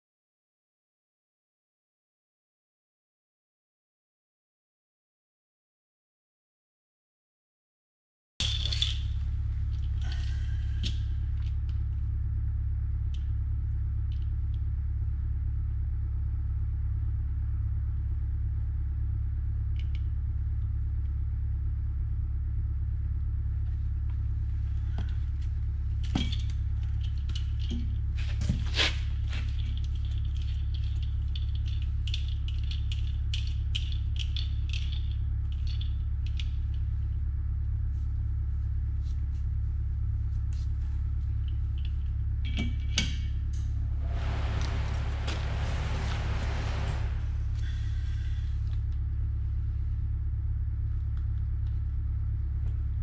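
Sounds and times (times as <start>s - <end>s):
metal parts and tools clinking: 8.4s - 11.0s, 26.0s - 28.4s, 29.3s - 36.8s
low hum: 8.4s - 53.0s.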